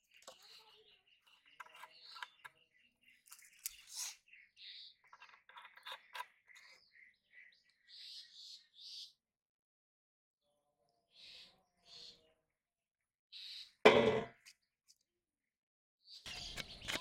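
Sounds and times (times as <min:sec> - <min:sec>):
birds chirping: 0:00.0 - 0:09.3, 0:11.0 - 0:12.7, 0:13.3 - 0:14.6, 0:16.1 - 0:17.0.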